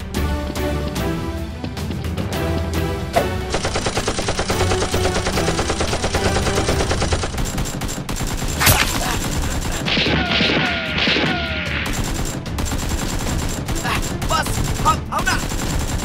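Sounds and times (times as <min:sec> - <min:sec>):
action music: 0:00.0 - 0:16.0
automatic gunfire: 0:03.5 - 0:16.0
single gunshot: 0:08.6 - 0:09.2.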